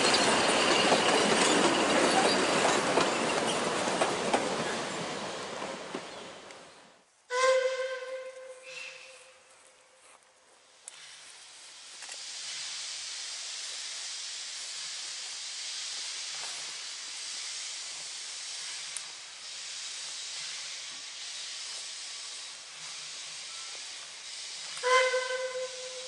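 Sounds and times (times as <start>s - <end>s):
steam locomotive whistle: 7.3s - 9.4s, 24.7s - 26.0s
steady hiss: 8.4s - 26.0s.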